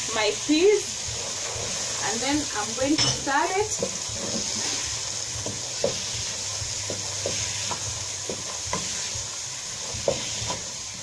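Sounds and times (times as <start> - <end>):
vegetables sizzling: 0.0 - 11.0
wooden spoon scraping a pot: 3.6 - 11.0.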